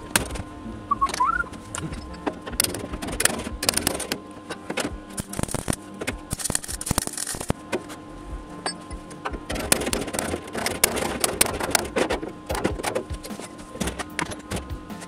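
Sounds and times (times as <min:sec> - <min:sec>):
welder crackling: 0:00.0 - 0:08.0.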